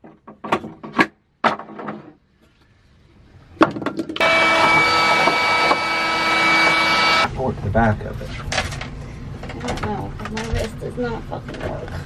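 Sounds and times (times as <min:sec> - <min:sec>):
small electric motor humming: 0:04.2 - 0:07.3.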